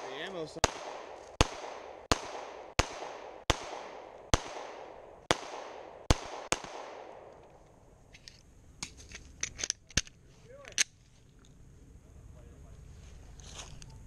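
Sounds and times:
pistol shots echoing: 0.0s - 7.4s
pistol metallic clicks: 0.6s - 11.0s.

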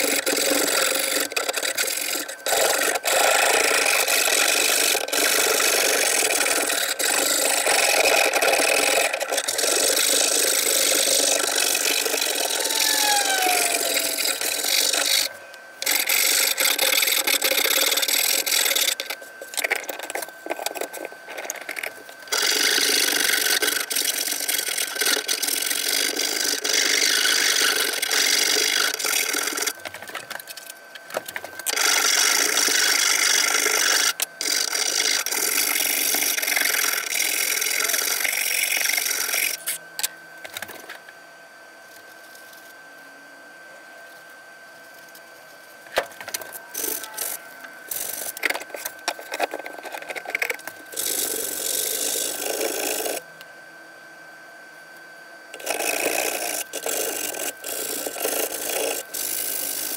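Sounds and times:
rasp scraping wood: 0.0s - 29.5s.

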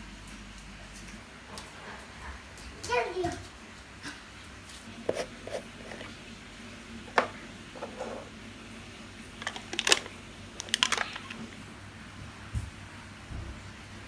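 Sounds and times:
plastic seal crinkling: 9.4s - 11.6s.

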